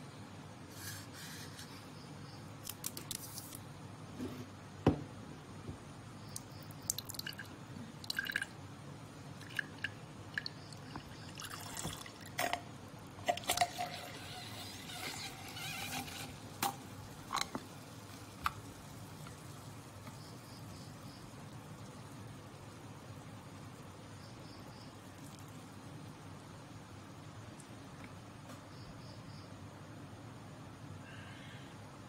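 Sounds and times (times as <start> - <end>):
liquid dripping and trickling into glass: 6.3 - 8.6, 9.4 - 12.6.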